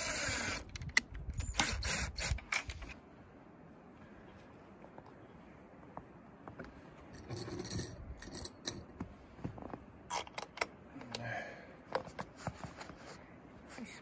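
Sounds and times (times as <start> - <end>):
metal hook scraping on wood: 7.2 - 8.9.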